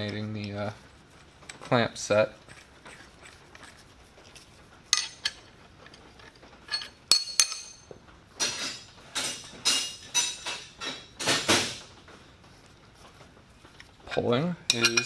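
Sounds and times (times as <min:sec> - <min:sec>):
metal parts clinking on metal table: 0:05.0 - 0:05.5, 0:06.2 - 0:11.8, 0:14.7 - 0:15.0.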